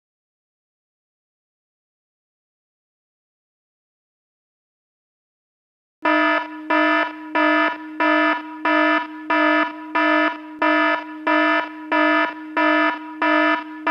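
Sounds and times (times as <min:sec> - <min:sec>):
continuous lower tone: 0:06.0 - 0:13.9
timer alarm buzzy beeps: 0:06.0 - 0:13.9.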